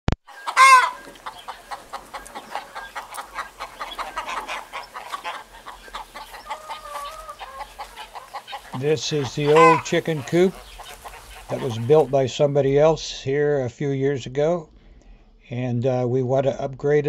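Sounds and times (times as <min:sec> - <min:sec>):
chickens clucking: 0:00.2 - 0:12.9.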